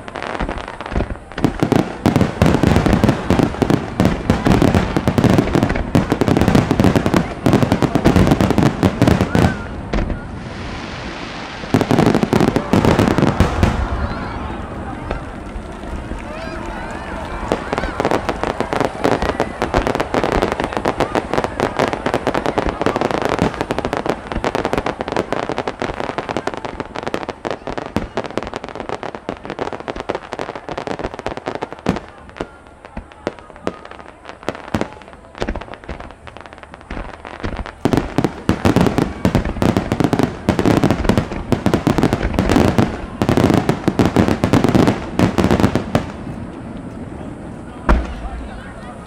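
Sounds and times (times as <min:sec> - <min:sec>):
deep fireworks booms: 0:00.0 - 0:49.0
fireworks bangs and crackling: 0:00.0 - 0:49.0.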